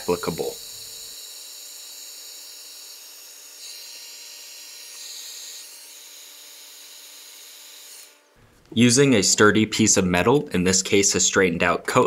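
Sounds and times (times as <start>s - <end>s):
heat gun blowing: 0.0s - 8.7s.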